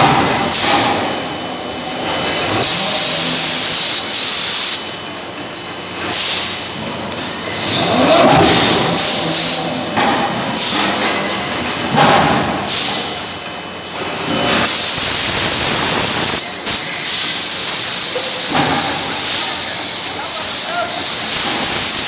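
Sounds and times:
loud hissing air: 0.4 - 5.0, 14.7 - 22.0.

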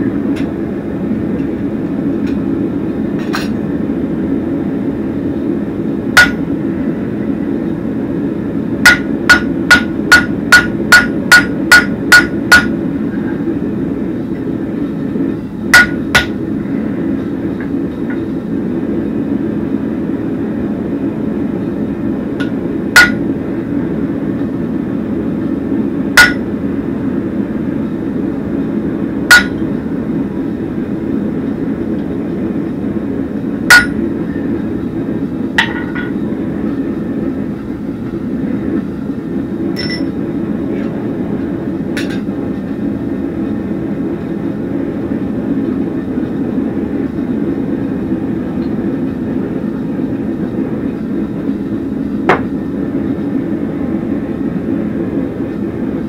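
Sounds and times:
hammer striking steel on anvil: 6.2 - 6.5, 8.8 - 12.8, 15.7 - 16.4, 22.4 - 23.3, 26.2 - 26.5, 29.3 - 29.6, 33.7 - 34.0, 35.6 - 36.2, 39.8 - 40.1.

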